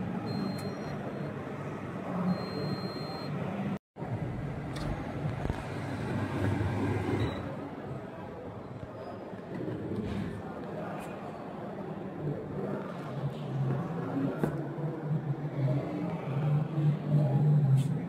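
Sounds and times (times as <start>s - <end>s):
faint high electronic beeps: 0.2s - 1.4s, 2.2s - 3.4s
crowd murmur in a hall: 7.3s - 18.0s.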